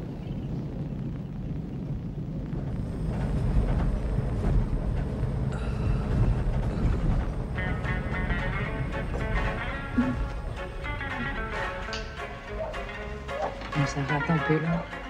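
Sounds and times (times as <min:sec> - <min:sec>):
vehicle road rumble from inside: 0:02.4 - 0:14.1.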